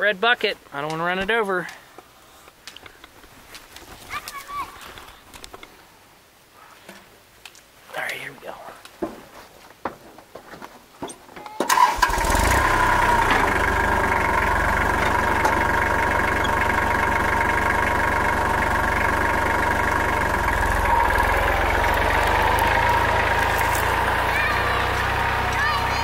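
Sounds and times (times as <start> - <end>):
tractor diesel engine starting: 11.6 - 26.0
tractor engine running: 11.7 - 26.0.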